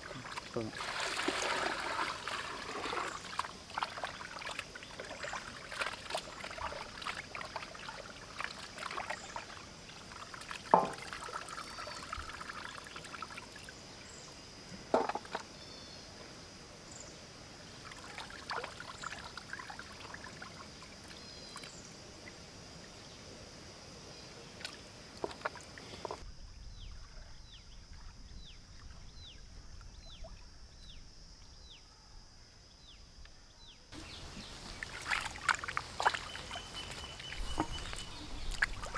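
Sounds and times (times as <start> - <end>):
water splashing and trickling: 0.0 - 14.3, 17.7 - 23.1, 24.4 - 26.3, 33.9 - 38.9.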